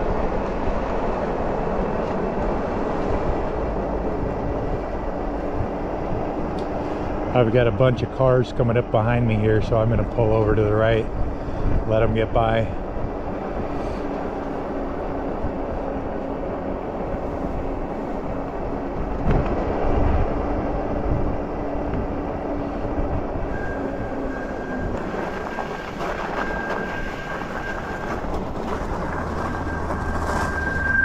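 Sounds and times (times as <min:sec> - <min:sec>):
low steady hum: 0:00.0 - 0:31.0
wind buffeting microphone: 0:00.0 - 0:31.0
bike tyre noise: 0:10.1 - 0:31.0
high thin squeal: 0:23.5 - 0:31.0.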